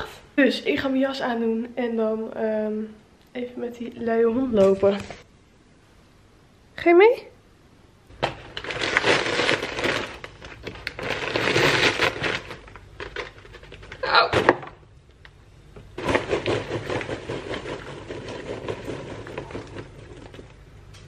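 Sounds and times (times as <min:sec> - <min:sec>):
paper bag tearing and rustling: 0:08.2 - 0:14.3, 0:16.0 - 0:20.5
popcorn poured into bowl: 0:16.0 - 0:20.6.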